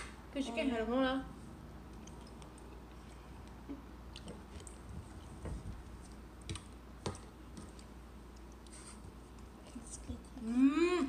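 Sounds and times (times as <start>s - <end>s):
chewing: 1.9s - 6.8s.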